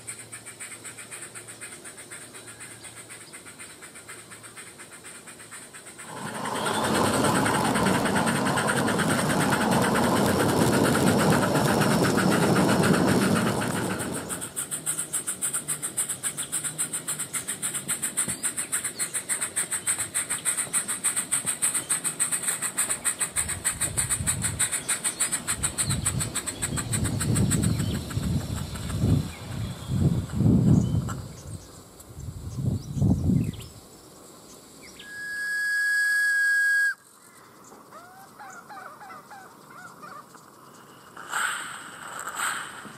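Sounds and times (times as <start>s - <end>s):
electronic steam chuffing: 5.9s - 31.3s, 41.2s - 42.9s
loud rushing noise: 6.0s - 14.5s, 41.2s - 42.9s.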